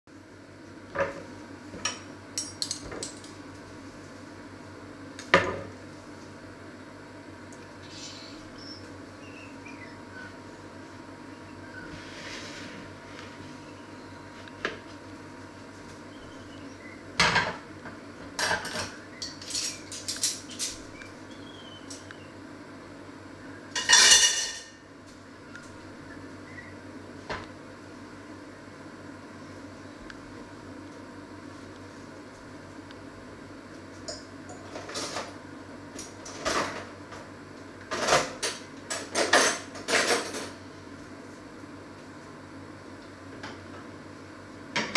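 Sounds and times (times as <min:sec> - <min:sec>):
low steady hum: 0:00.1 - 0:44.9
loud kitchenware clatter: 0:18.4 - 0:20.9, 0:23.8 - 0:24.8, 0:37.9 - 0:40.6
metal utensils clinking: 0:18.5 - 0:20.8, 0:23.8 - 0:24.7
kitchenware clinking and knocking: 0:23.8 - 0:24.7.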